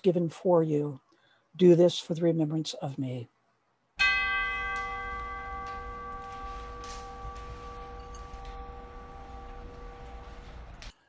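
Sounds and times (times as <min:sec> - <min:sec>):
bell ringing: 0:04.0 - 0:10.9.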